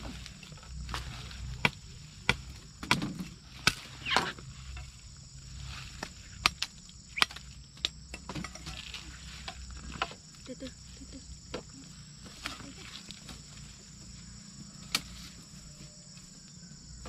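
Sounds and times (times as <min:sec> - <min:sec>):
steady low rumble: 0:00.0 - 0:08.2
sharp knocks and snaps: 0:06.0 - 0:08.6.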